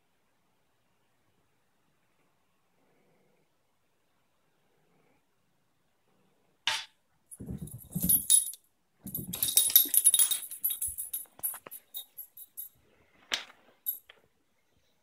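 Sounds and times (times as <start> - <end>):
collar tags jingling: 7.3 - 12.7.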